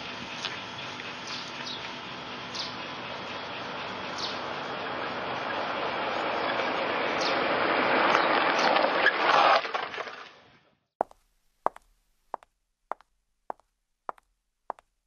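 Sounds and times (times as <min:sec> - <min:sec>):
golf cart rolling: 0:04.9 - 0:10.3
footsteps on tiles: 0:11.0 - 0:15.0.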